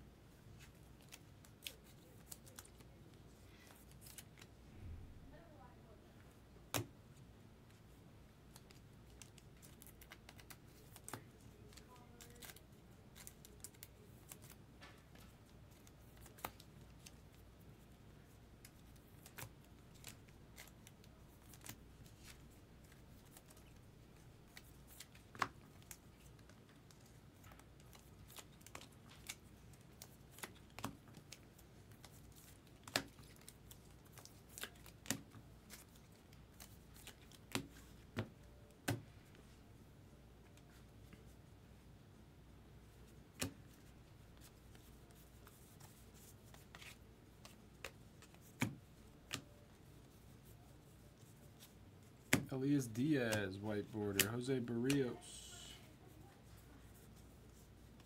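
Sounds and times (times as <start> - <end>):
trading cards being shuffled: 42.9 - 55.7.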